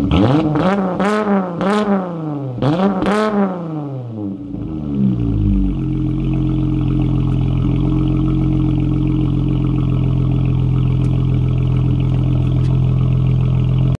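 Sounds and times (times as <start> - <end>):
car engine idling: 3.0 - 14.0.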